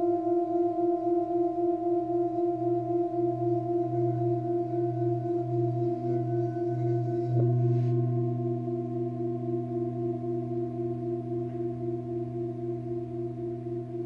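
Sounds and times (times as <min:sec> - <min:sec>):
singing bowl struck: 0:00.0 - 0:14.0
singing bowls ringing: 0:00.0 - 0:14.0.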